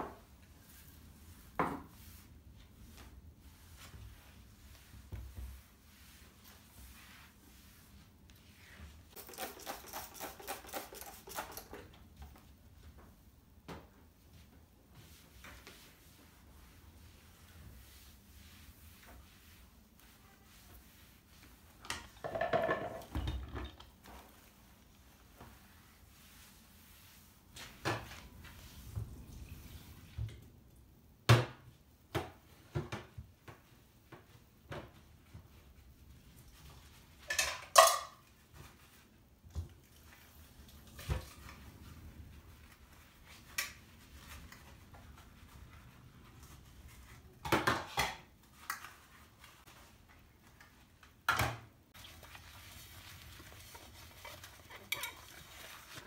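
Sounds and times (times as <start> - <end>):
dishes knocking and clinking: 22.0 - 23.8, 37.3 - 38.2.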